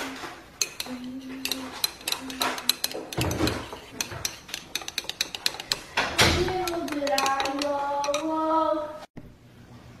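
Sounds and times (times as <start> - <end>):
metal spoon clinking in mug: 0.6 - 8.4.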